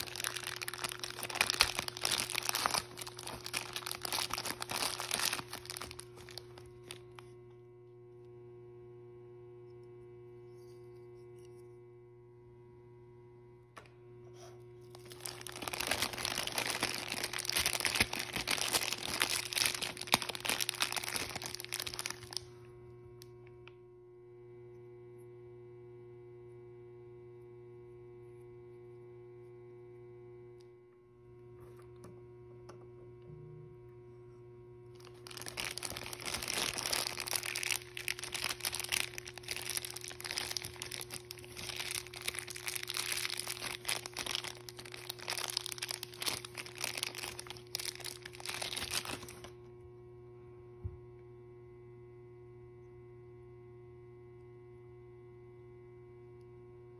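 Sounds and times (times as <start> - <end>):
plastic wrappers crinkling: 0.0 - 7.4, 14.8 - 22.6, 35.0 - 49.6
steady low hum: 0.0 - 56.9.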